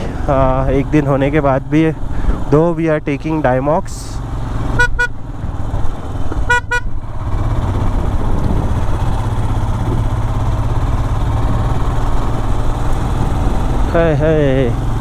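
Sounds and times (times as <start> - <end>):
motorcycle engine running: 0.0 - 15.0
horn beeps: 4.8 - 5.2, 6.4 - 7.0.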